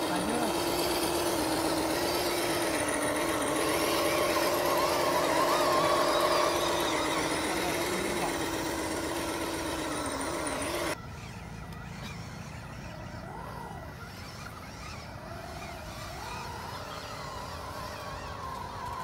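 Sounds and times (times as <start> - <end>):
electric motor and gearbox whine: 0.0 - 19.0.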